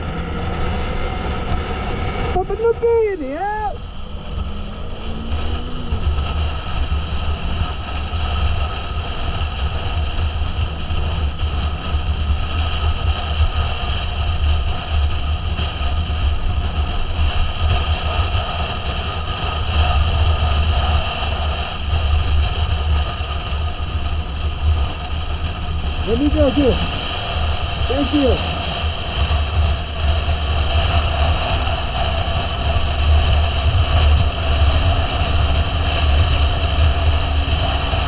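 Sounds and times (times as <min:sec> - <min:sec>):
motorcycle engine running: 0:00.0 - 0:38.0
wind and road noise: 0:00.0 - 0:38.0.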